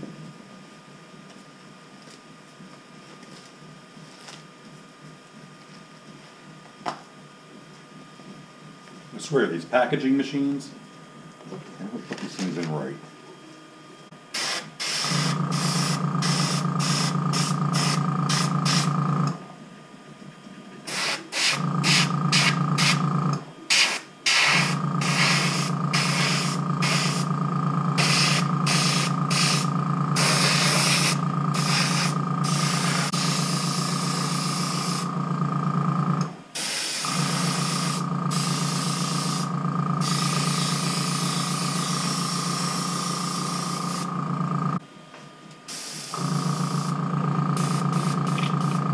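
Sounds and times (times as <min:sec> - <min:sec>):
air compressor humming: 0:14.0 - 0:44.9, 0:45.6 - 0:48.9
airbrush spraying hiss: 0:14.4 - 0:18.9, 0:20.9 - 0:23.0, 0:23.7 - 0:27.3, 0:28.0 - 0:35.0, 0:36.6 - 0:39.4, 0:40.0 - 0:44.1, 0:45.7 - 0:46.2.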